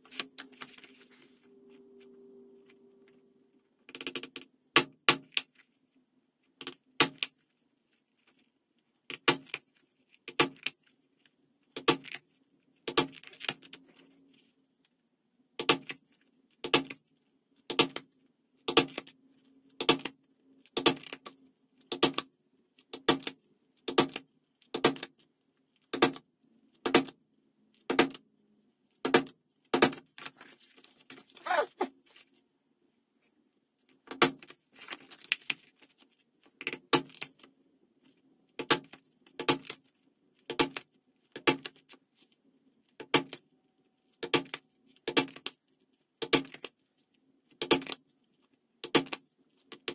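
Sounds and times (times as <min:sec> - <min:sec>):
faint steady hum: 0:00.0 - 0:03.9.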